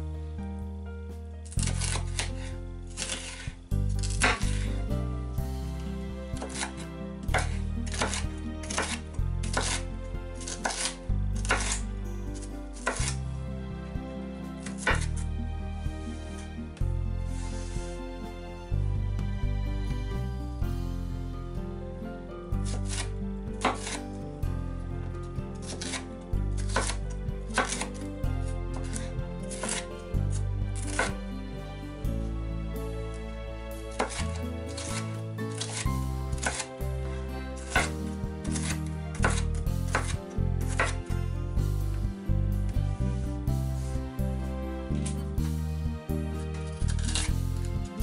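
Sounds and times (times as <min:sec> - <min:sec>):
background music: 0:00.0 - 0:48.0
knife chopping on wooden board: 0:01.6 - 0:04.7, 0:06.4 - 0:09.8, 0:10.4 - 0:11.8, 0:12.8 - 0:13.2, 0:14.8 - 0:15.1, 0:22.6 - 0:24.0, 0:26.6 - 0:27.8, 0:34.0 - 0:35.0, 0:35.6 - 0:36.7, 0:37.7 - 0:41.0.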